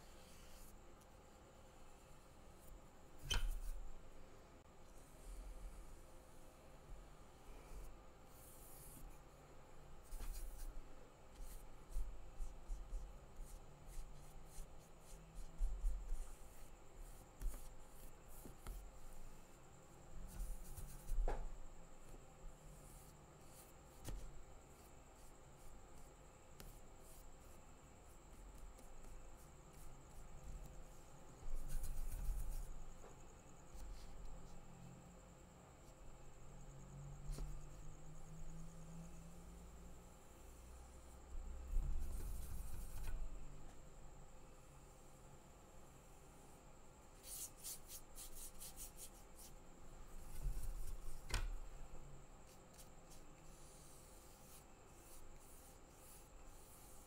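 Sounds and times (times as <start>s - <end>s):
faint high whine: 0.0s - 57.0s
paintbrush scratching and tapping: 10.0s - 19.4s, 22.8s - 34.6s, 41.8s - 43.4s, 50.1s - 51.6s, 52.5s - 57.0s
paintbrush scratching on paper: 28.3s - 32.9s, 52.4s - 57.0s.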